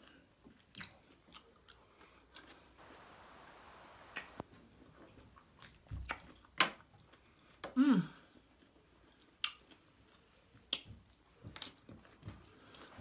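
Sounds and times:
chewing cucumber: 0:00.0 - 0:02.8, 0:05.4 - 0:12.8
faint sharp clicks: 0:04.0 - 0:04.5.

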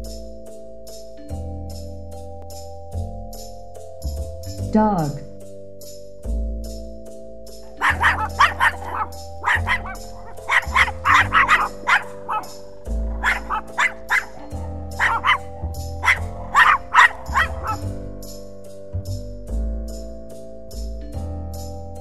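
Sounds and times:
background music: 0:00.0 - 0:22.0
puppy yapping: 0:07.7 - 0:17.9.

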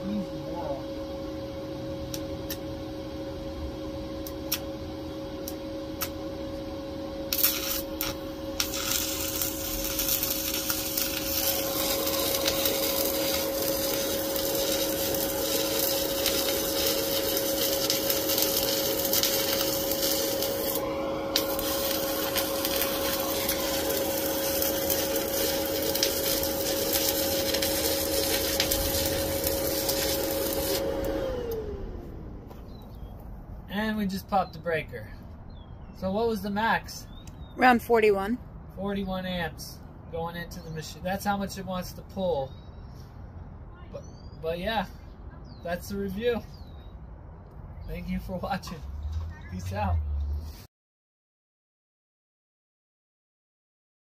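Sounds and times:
welder whine: 0:00.0 - 0:34.4
welding arc crackling: 0:07.2 - 0:31.2.

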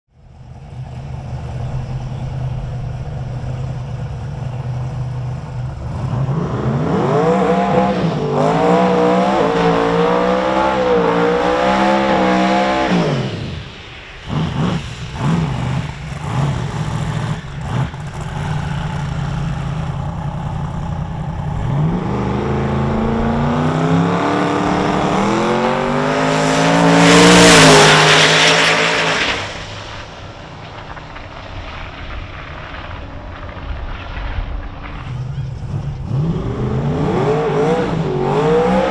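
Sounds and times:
car engine revving: 0:00.4 - 0:38.9
loud rushing blast: 0:07.0 - 0:38.9.

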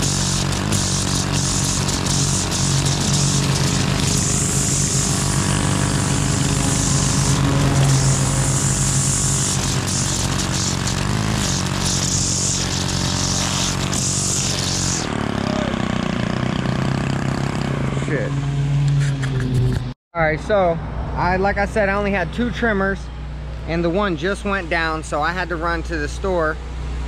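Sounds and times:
string trimmer engine: 0:00.0 - 0:19.4
trimmer line cutting grass: 0:00.0 - 0:19.8.

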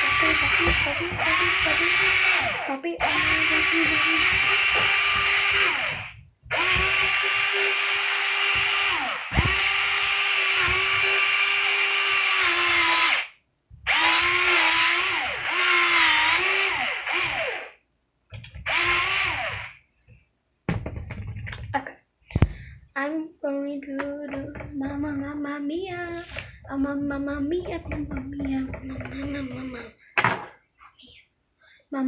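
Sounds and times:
electric pencil sharpener whining: 0:00.0 - 0:17.8, 0:18.6 - 0:19.8.

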